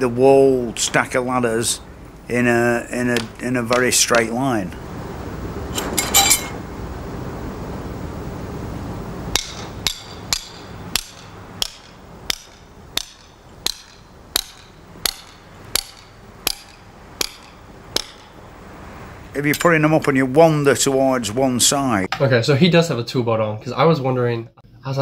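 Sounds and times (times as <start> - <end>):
low background noise: 0.0 - 25.0
hammer striking metal: 5.8 - 6.6, 9.3 - 18.4.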